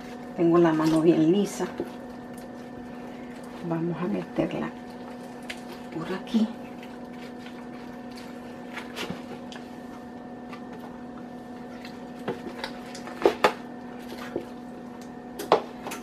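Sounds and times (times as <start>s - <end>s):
foil pan crinkling: 0.0s - 14.9s
steady low hum: 0.0s - 16.0s
soft squishing of stuffing: 4.8s - 13.2s.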